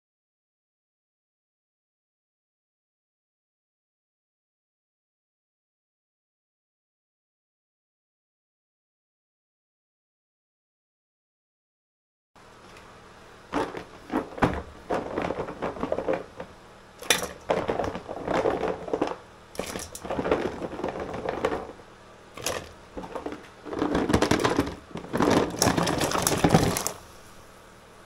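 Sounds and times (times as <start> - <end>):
small hard objects clattering: 13.5 - 21.8, 22.4 - 27.2
gas burner hissing: 26.5 - 27.6.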